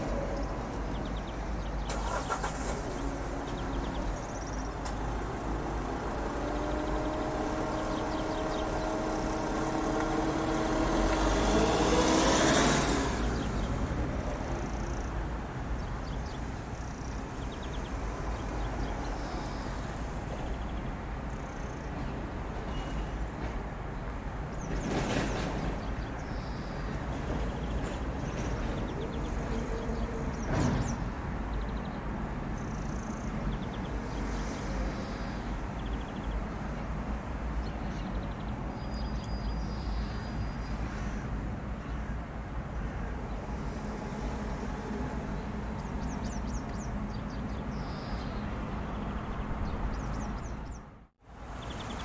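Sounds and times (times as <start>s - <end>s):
distant engine droning past: 0.0s - 15.1s.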